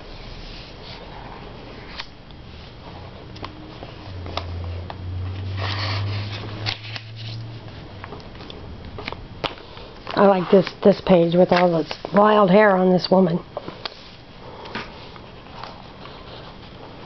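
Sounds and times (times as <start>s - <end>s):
low steady hum: 0.0s - 17.0s
magazine pages turning: 5.3s - 7.7s, 8.4s - 12.4s.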